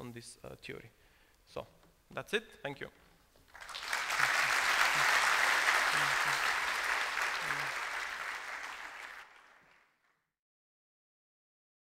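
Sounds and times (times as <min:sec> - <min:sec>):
audience applauding: 0:03.5 - 0:10.2.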